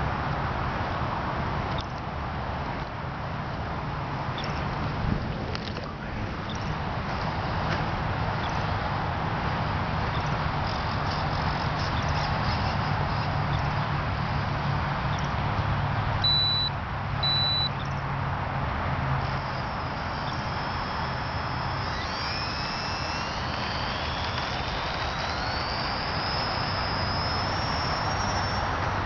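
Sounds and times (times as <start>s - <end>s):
electric motors whining: 4.2s - 15.4s, 19.2s - 29.0s
short high beeps: 16.2s - 17.8s
steady hiss: 19.2s - 29.0s.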